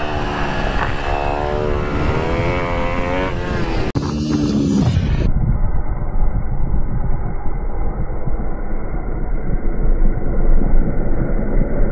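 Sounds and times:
motorcycle engine at high revs: 0.0s - 5.0s
motorcycle passing by: 0.0s - 5.0s
muffled low engine rumble: 0.0s - 11.9s.

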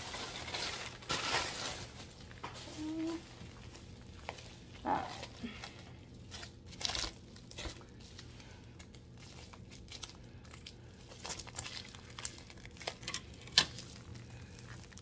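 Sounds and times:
plastic packaging crinkling: 0.0s - 15.0s.

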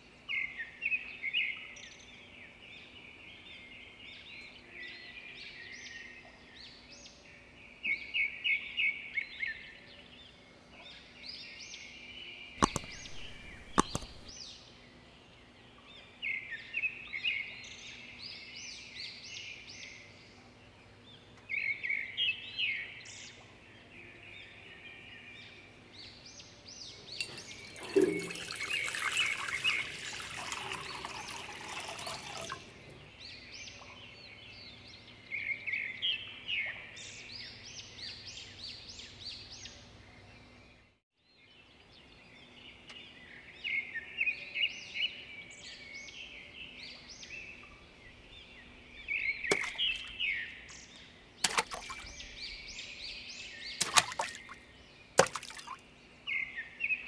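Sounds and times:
birds chirping: 12.4s - 14.6s, 26.8s - 40.4s, 42.4s - 57.0s
sharp clicks: 12.6s - 14.3s
water pouring into glass bowl: 12.6s - 14.3s, 27.2s - 32.9s, 49.5s - 50.0s, 51.4s - 52.0s, 55.2s - 55.8s.

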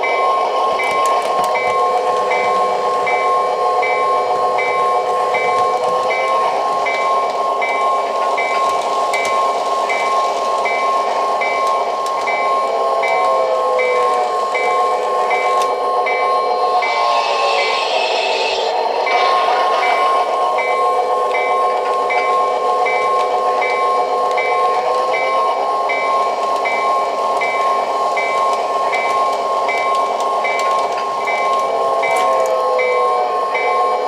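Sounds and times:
model train running hum: 0.0s - 34.0s
train bell ringing: 0.0s - 34.0s
hiss: 16.8s - 21.5s.

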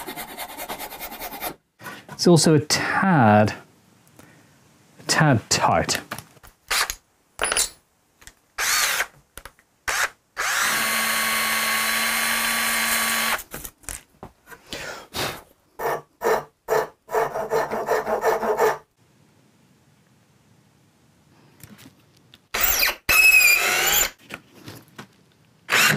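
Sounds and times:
cordless drill motor: 8.6s - 9.1s, 9.9s - 13.4s, 22.6s - 24.1s, 25.7s - 25.9s.

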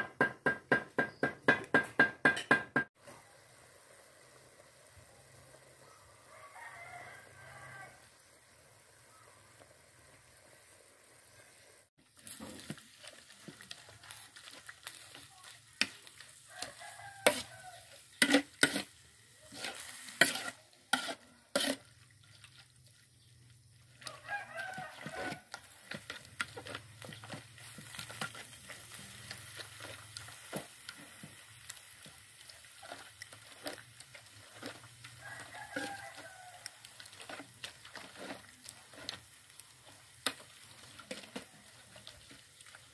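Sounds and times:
meat sizzling: 3.0s - 42.9s
rooster crowing: 5.8s - 8.2s, 16.4s - 18.0s, 24.0s - 25.7s, 35.1s - 37.0s
metal spoon scraping a wok: 14.4s - 23.0s, 23.9s - 31.2s, 32.1s - 42.2s.

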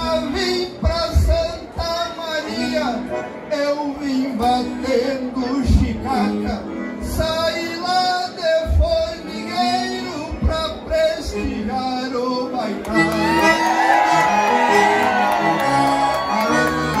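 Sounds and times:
man singing into microphone: 0.0s - 13.1s
instrumental accompaniment: 0.0s - 17.0s
crowd cheering and whooping: 13.1s - 17.0s.

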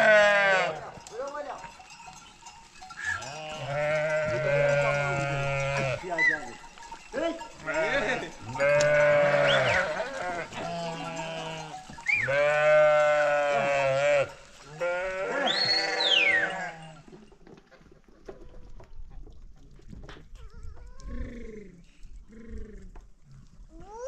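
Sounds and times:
sheep and goats bleating: 0.0s - 17.2s.

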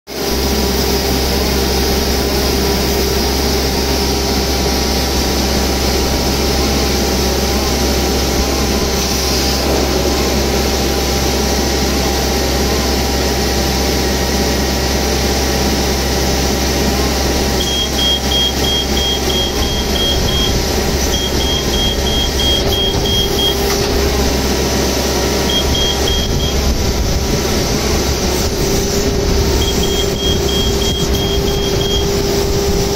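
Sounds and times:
machine humming loudly: 0.1s - 32.9s
rapid high electronic beeps: 17.6s - 23.6s, 25.5s - 26.7s, 29.6s - 32.2s.

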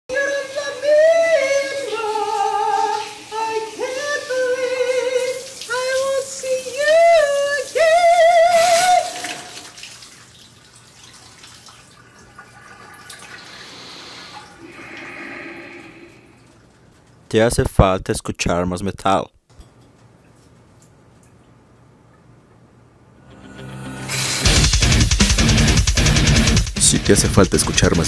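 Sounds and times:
man singing with vibrato: 0.1s - 9.6s
shower water running: 0.1s - 17.2s.

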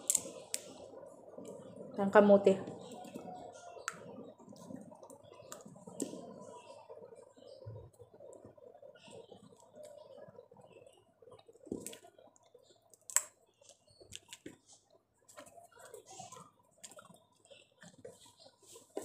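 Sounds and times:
shell cracking: 12.9s - 13.4s.

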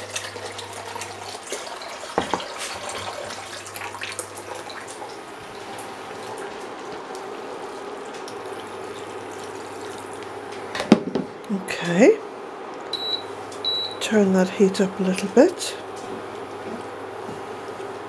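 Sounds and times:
water pouring into a pan: 0.0s - 5.2s.

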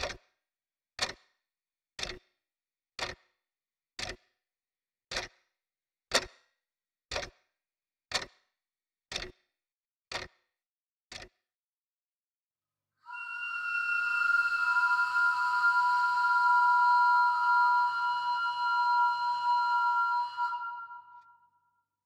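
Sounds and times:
clock ticking: 0.0s - 0.2s, 2.0s - 2.2s, 3.0s - 3.2s, 4.0s - 4.2s, 5.1s - 5.3s, 7.1s - 7.4s, 8.1s - 8.4s, 9.1s - 9.4s, 10.1s - 10.3s, 11.1s - 11.4s.

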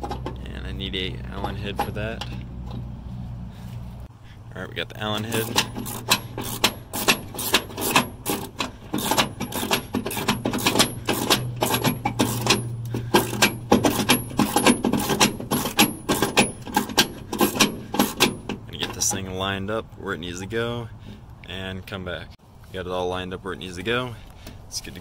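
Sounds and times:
socket ratchet clicking: 5.3s - 18.7s.

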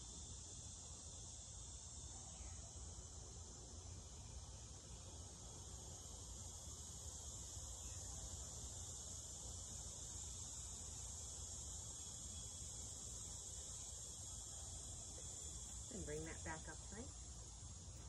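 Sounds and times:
crickets trilling: 0.0s - 18.0s.

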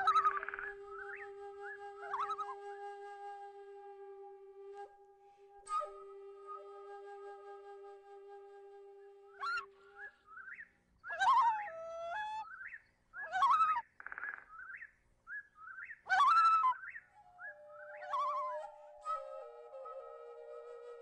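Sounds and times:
whistled bird-like calls: 0.0s - 2.7s, 9.3s - 21.0s
held flute-like note: 0.0s - 10.1s, 17.2s - 21.0s.

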